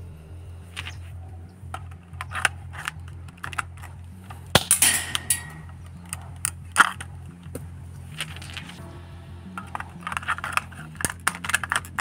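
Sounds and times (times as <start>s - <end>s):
sharp plastic clicks: 1.7s - 8.8s
gas shell firing pop: 4.6s - 5.7s.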